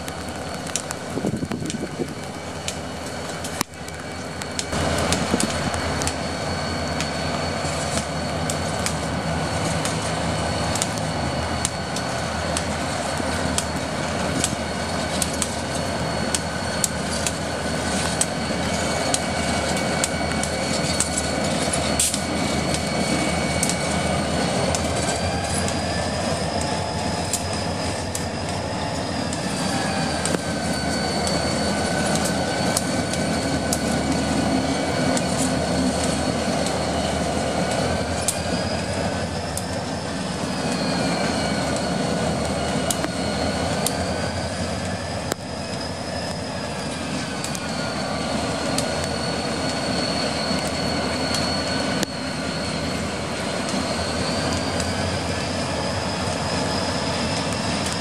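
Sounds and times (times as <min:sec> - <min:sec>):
high thin wheel squeal: 0:00.0 - 0:58.0
locomotive engine rumble: 0:00.0 - 0:58.0.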